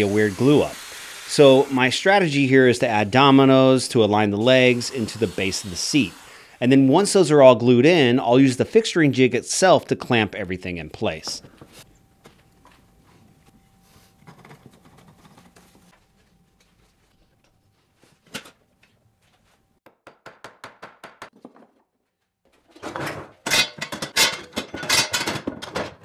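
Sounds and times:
metal clamps clacking and ratcheting: 0:23.4 - 0:26.0.

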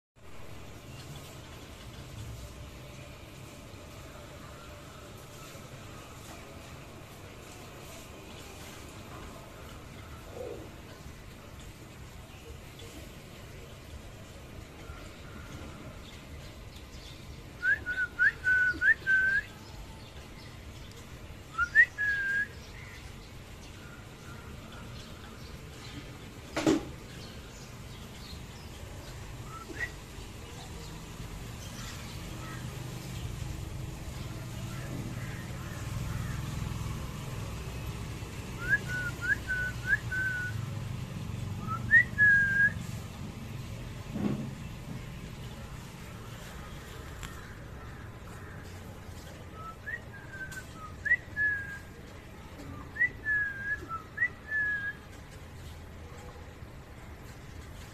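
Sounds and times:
whistled notes: 0:29.5 - 0:30.0.

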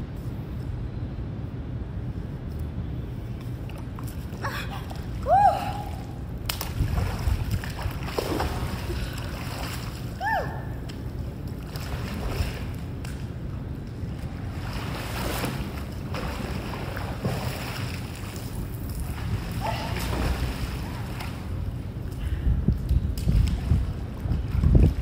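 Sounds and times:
wind rumbling on microphone: 0:01.8 - 0:25.0
pool water splashing: 0:03.6 - 0:22.1.

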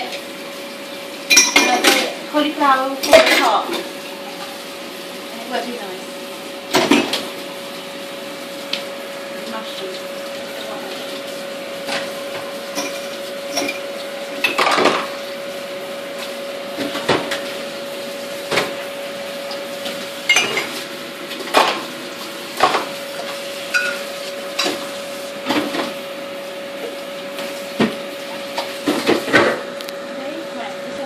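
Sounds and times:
steady hum and hiss: 0:00.0 - 0:31.0
pots and utensils clinking: 0:01.0 - 0:04.6, 0:06.7 - 0:07.4, 0:11.8 - 0:15.3, 0:19.4 - 0:26.0.

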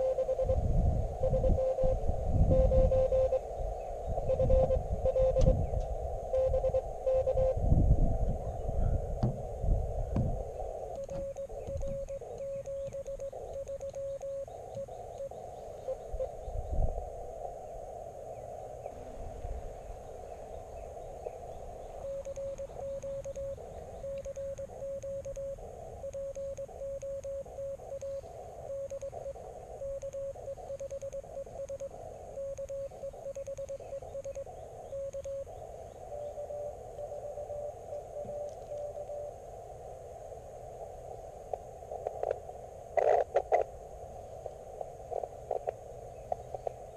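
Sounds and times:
morse code beeps: 0:00.0 - 0:03.5, 0:04.2 - 0:05.6, 0:06.3 - 0:07.6, 0:10.8 - 0:16.4, 0:22.0 - 0:39.4
radio band hiss: 0:00.0 - 0:46.9.

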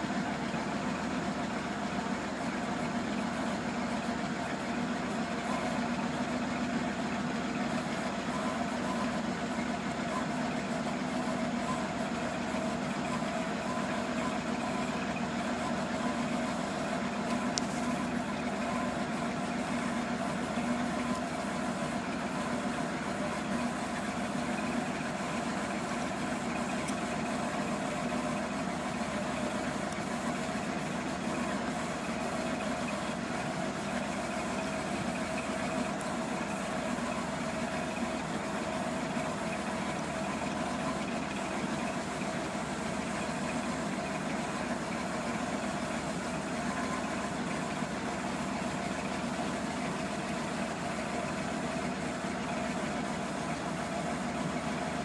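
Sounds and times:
truck engine idling: 0:00.0 - 0:55.0.

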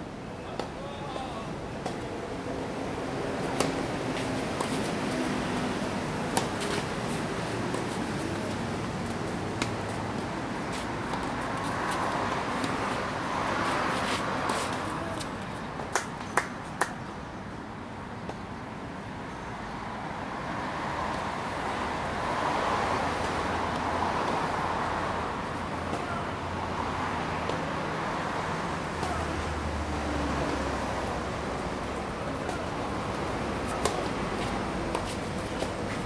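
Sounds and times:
road traffic hum: 0:00.0 - 0:36.0
racket striking ball: 0:03.4 - 0:03.8, 0:06.3 - 0:06.8, 0:33.7 - 0:34.1
tennis ball knocks: 0:06.3 - 0:06.7, 0:33.7 - 0:34.1.

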